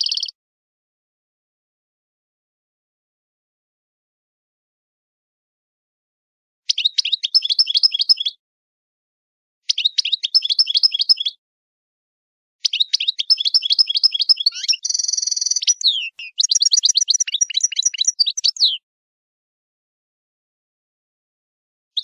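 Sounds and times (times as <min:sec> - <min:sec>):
songbird trilling: 0:00.0 - 0:00.3, 0:06.7 - 0:08.3, 0:09.7 - 0:11.4, 0:12.6 - 0:18.8.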